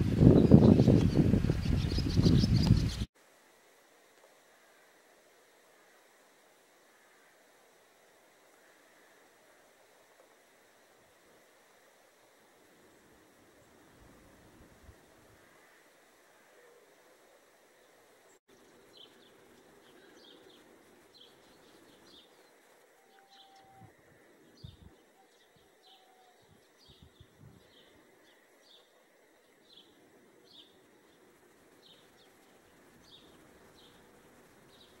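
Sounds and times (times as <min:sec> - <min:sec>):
quiet outdoor ambience: 0:00.0 - 0:35.0
small bird chirping: 0:00.2 - 0:03.1.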